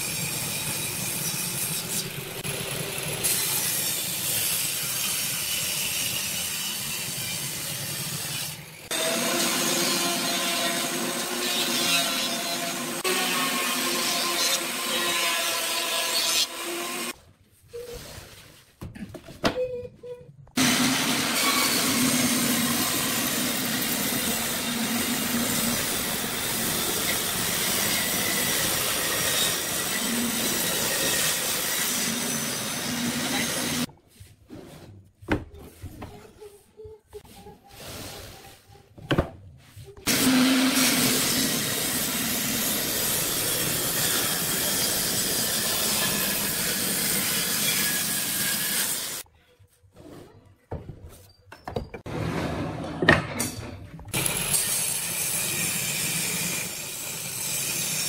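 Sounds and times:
table saw cutting boards: 0:00.0 - 0:17.2, 0:20.6 - 0:33.9, 0:40.1 - 0:49.2, 0:54.1 - 0:58.0.

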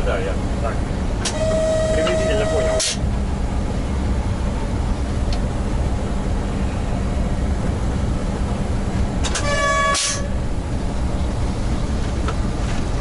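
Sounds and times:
locomotive cab rumble: 0:00.0 - 0:13.0
short pitched tone: 0:01.3 - 0:03.0.

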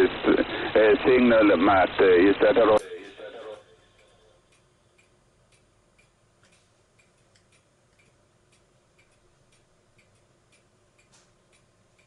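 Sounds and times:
faint regular ticking: 0:03.2 - 0:12.0.

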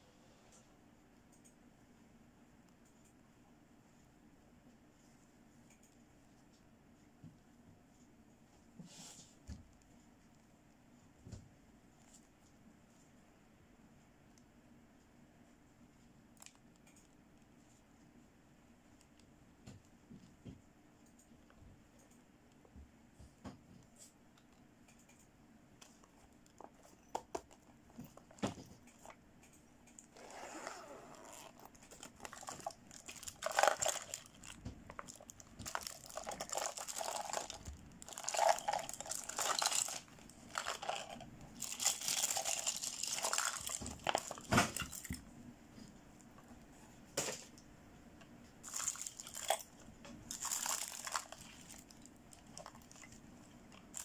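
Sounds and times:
plastic packaging crinkling: 0:31.1 - 0:45.2, 0:48.6 - 0:54.0.

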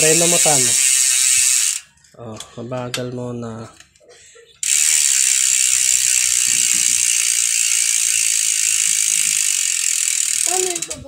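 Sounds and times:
bicycle freehub ratcheting buzz: 0:00.0 - 0:01.9, 0:04.6 - 0:11.0.

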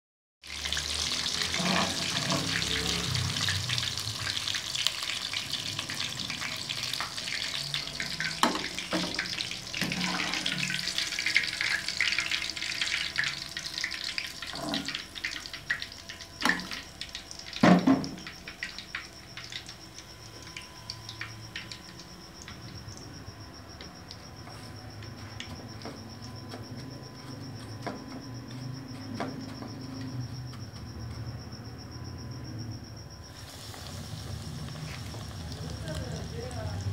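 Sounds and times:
chicken deep-frying in oil: 0:00.4 - 0:24.2, 0:33.2 - 0:36.9.

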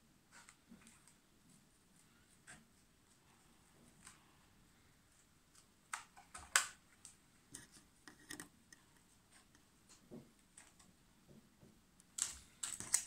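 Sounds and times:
scissors snipping plastic: 0:12.1 - 0:13.0.

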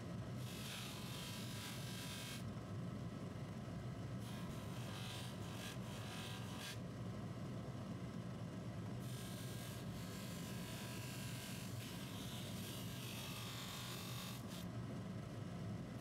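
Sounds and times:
metal part rubbing on buffing wheel: 0:00.4 - 0:02.4, 0:04.3 - 0:06.8, 0:09.0 - 0:14.7.

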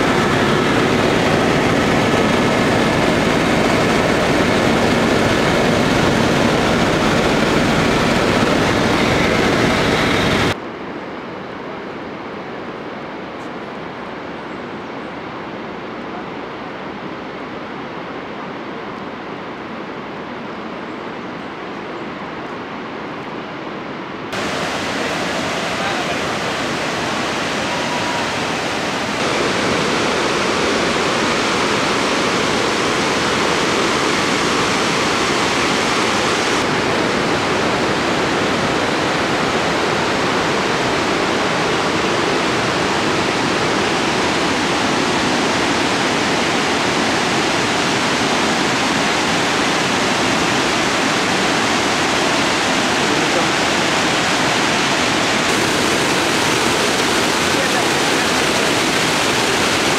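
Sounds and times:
waterfall rushing: 0:00.0 - 0:10.6, 0:24.4 - 0:59.9.

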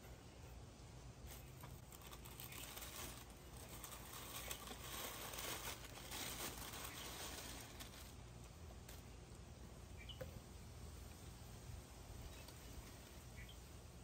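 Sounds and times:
tissue paper rustling: 0:01.7 - 0:08.4.

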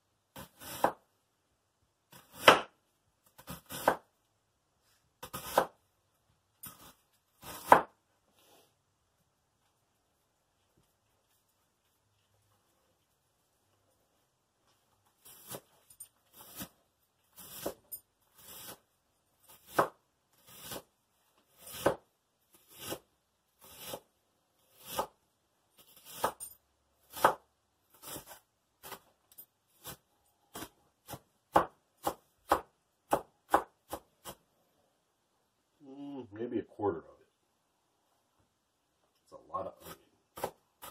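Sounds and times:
knife chopping on wooden board: 0:00.4 - 0:01.0, 0:02.1 - 0:02.7, 0:03.4 - 0:04.1, 0:05.2 - 0:05.8, 0:06.7 - 0:08.0, 0:17.4 - 0:17.8, 0:19.5 - 0:20.9, 0:21.5 - 0:22.0, 0:22.7 - 0:23.0, 0:23.7 - 0:24.0, 0:24.7 - 0:25.2, 0:26.0 - 0:26.4, 0:27.1 - 0:29.0, 0:29.8 - 0:34.4, 0:39.8 - 0:40.9.

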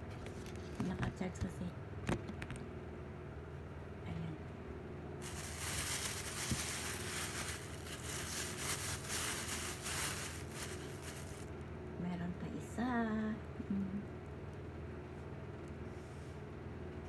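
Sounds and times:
food wrapping crinkling: 0:05.2 - 0:11.6.

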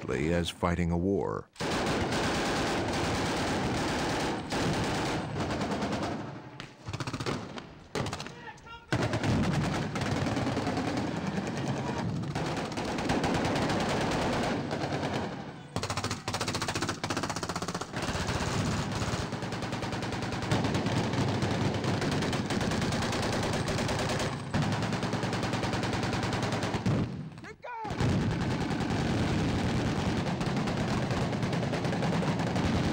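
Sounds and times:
automatic gunfire: 0:01.6 - 0:27.2, 0:27.8 - 0:32.9.

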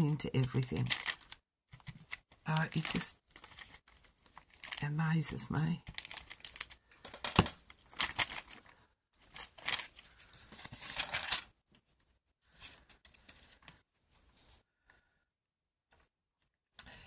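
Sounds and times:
paper rustling on cutting mat: 0:00.5 - 0:04.8, 0:07.9 - 0:11.5.

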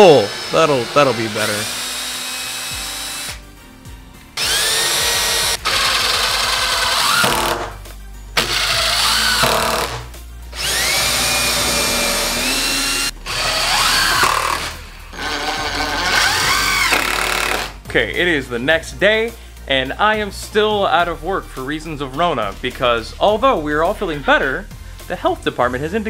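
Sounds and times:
cordless drill motor whining: 0:00.0 - 0:03.4, 0:04.4 - 0:07.6, 0:08.4 - 0:10.0, 0:10.6 - 0:17.8.

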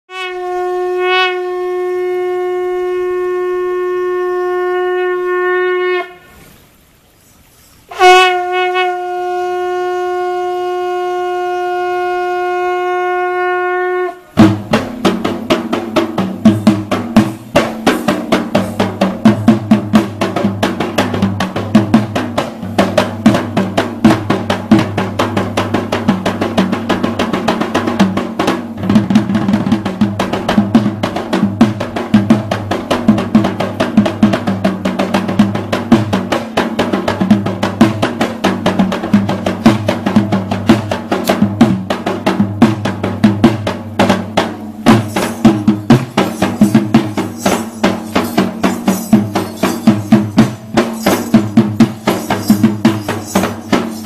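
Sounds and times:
conch shell blasts: 0:00.1 - 0:06.5, 0:07.9 - 0:14.7, 0:44.8 - 0:54.0
fast hand drumming: 0:14.4 - 0:54.0.

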